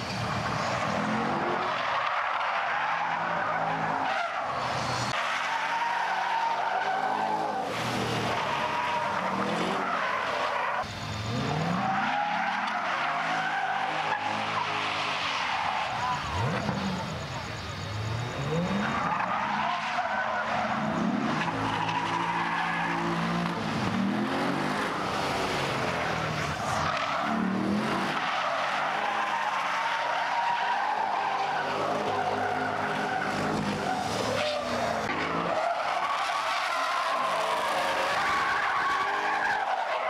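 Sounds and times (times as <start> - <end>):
car engine revving: 7.0 - 40.0
tyres squealing: 24.1 - 40.0.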